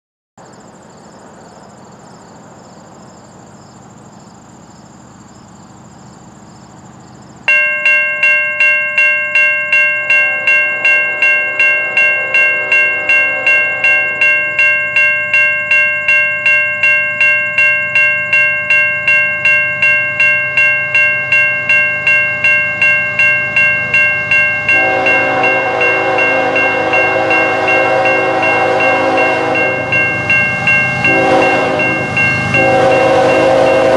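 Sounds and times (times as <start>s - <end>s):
heavy train rumble: 0.4s - 33.9s
railway crossing bell ringing: 6.8s - 33.9s
locomotive horn: 10.1s - 14.6s, 24.5s - 33.9s.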